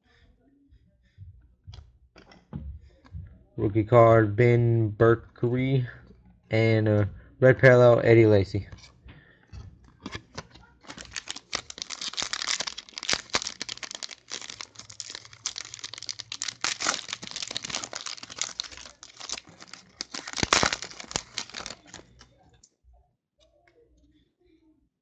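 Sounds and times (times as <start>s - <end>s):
foil wrapper crinkling and tearing: 10.3s - 22.2s.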